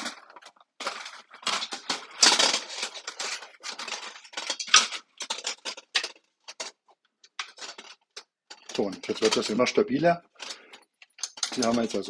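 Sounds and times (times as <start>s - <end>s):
aluminium panels rattling and clinking: 11.2s - 12.0s.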